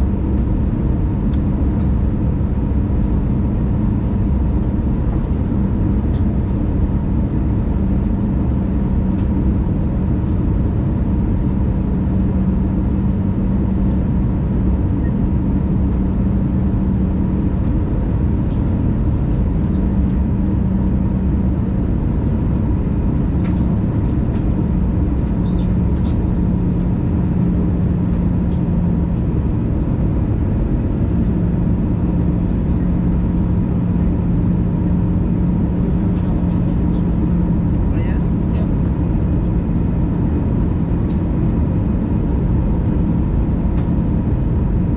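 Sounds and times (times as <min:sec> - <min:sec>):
jet engines droning: 0:00.0 - 0:44.9
steady low hum: 0:00.0 - 0:44.9.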